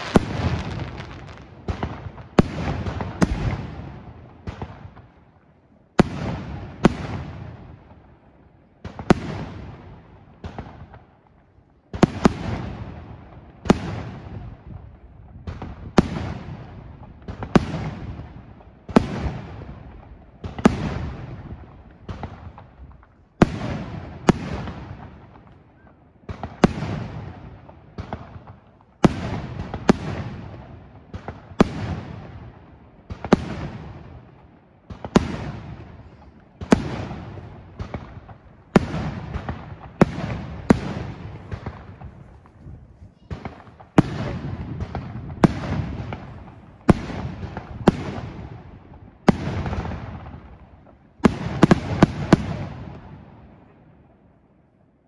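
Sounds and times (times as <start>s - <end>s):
fireworks bursting: 0.0s - 5.2s, 26.2s - 53.2s.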